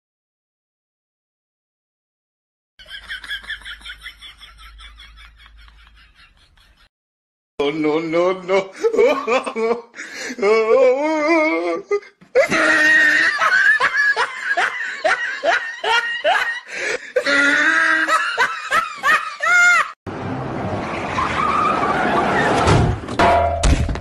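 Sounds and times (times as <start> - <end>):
hearty laughter: 2.8 - 6.9, 8.7 - 10.5, 11.9 - 20.0.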